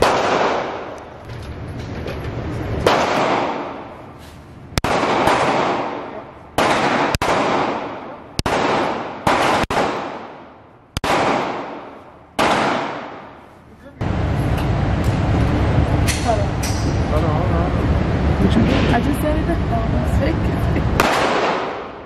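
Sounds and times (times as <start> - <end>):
pistol shots echoing indoors: 0.0 - 1.0, 2.8 - 3.9, 4.8 - 13.4, 21.0 - 22.0.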